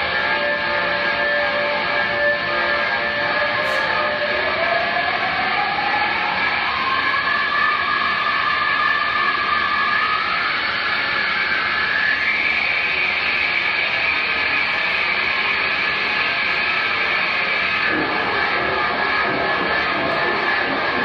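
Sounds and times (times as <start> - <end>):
noisy electric guitar drone: 0.0 - 21.0
low guitar notes: 14.5 - 21.0.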